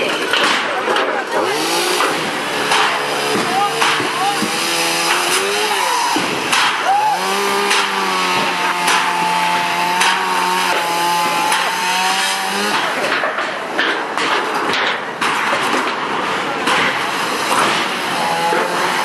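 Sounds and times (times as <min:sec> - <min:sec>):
corrugated metal fencing clattering: 0:00.0 - 0:06.8
small power tool motor revving: 0:01.4 - 0:13.0, 0:17.3 - 0:19.0.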